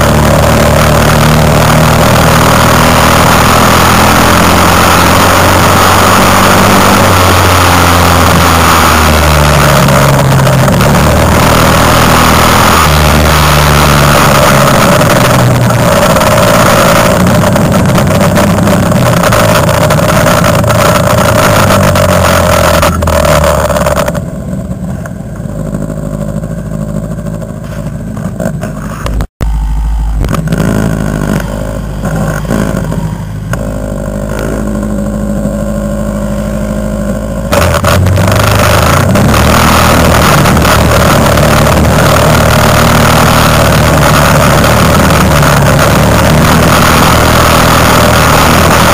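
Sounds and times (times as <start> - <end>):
quad bike engine revving: 0.0 - 48.9.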